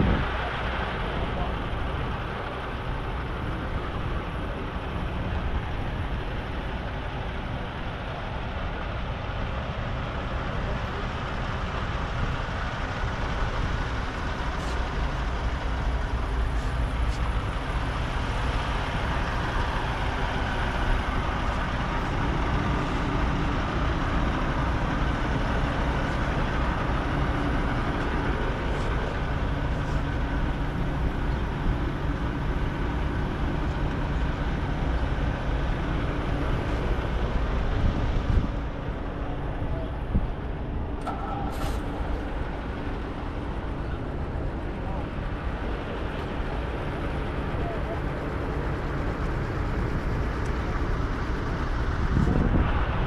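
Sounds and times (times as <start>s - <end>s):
road and wind noise: 0.0s - 53.0s
vehicle engine rumble: 0.0s - 53.0s.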